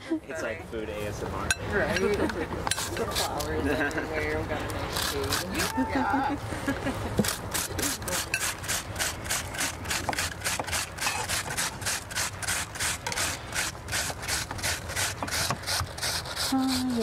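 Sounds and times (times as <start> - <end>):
onion rasping on hand grater: 2.7 - 3.6, 4.9 - 5.9, 7.2 - 17.0.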